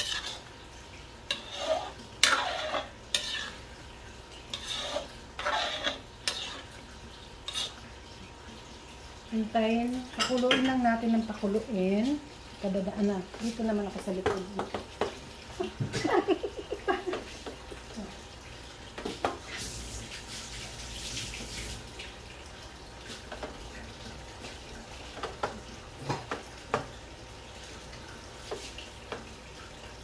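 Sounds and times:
sauce hissing and popping: 1.3 - 3.7, 4.5 - 6.8.

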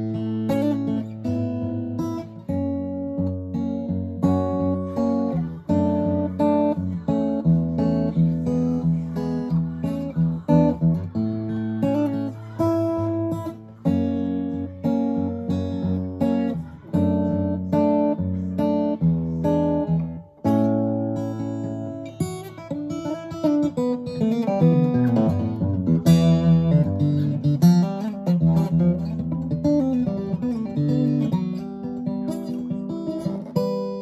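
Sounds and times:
acoustic guitar strumming chords: 0.0 - 34.0.

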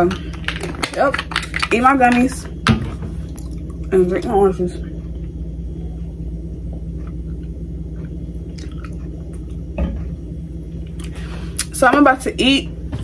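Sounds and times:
steady low hum: 0.0 - 13.0
person gulping a drink: 7.0 - 10.2.

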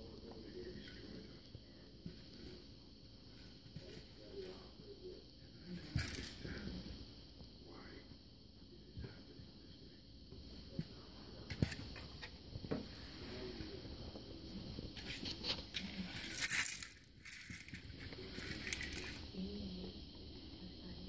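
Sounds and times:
kibble rattling inside plastic toy: 15.6 - 19.2.

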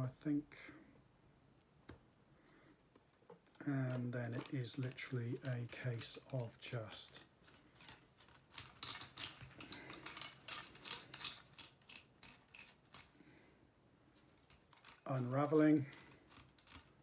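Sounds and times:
thread crackling as unwound: 3.2 - 13.2.

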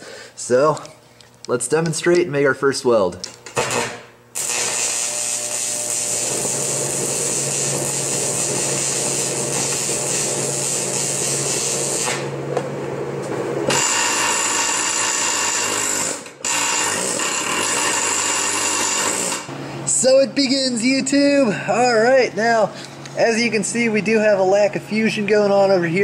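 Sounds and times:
welding arc crackling and sizzling: 3.4 - 12.4, 13.7 - 21.0.

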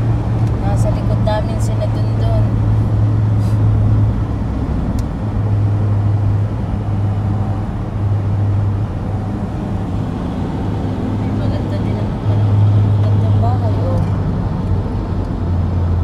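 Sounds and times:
car road noise and tyre rumble: 0.0 - 16.0.

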